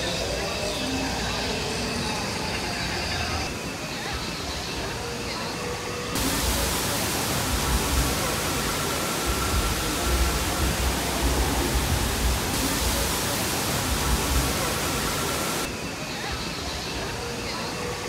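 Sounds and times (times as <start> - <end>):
waterfall roaring: 6.2 - 15.7.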